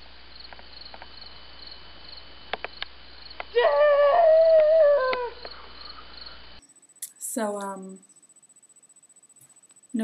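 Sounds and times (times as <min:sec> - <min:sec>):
crickets chirping: 0:00.0 - 0:10.0
woman calling out: 0:07.0 - 0:08.0.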